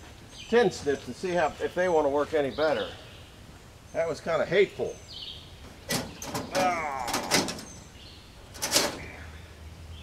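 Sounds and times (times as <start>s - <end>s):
sheet metal clanking: 5.7s - 7.9s, 8.5s - 9.2s.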